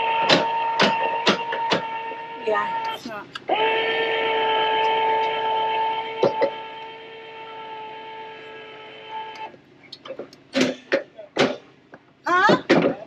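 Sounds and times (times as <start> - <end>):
electric jack motor whine: 0.0 - 9.6
knocks: 10.1 - 13.0.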